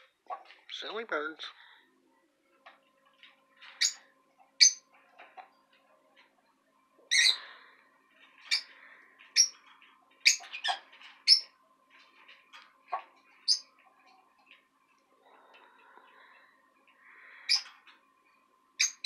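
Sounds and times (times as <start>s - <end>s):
lovebirds chirping: 3.4s - 5.7s, 7.1s - 18.2s, 18.8s - 19.0s.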